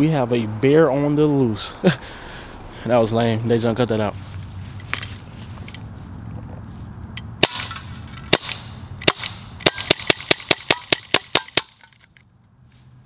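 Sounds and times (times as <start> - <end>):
airsoft pistol shots: 7.4 - 11.9.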